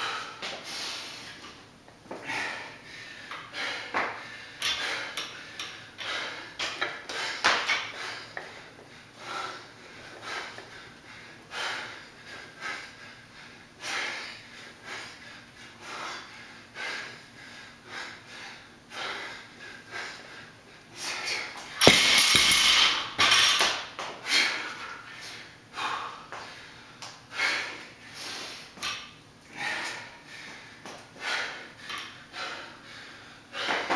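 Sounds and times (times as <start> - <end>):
man breathing hard: 0.0 - 33.9
barbell plates rattling: 21.8 - 23.8
barbell thudding on concrete: 21.8 - 23.9.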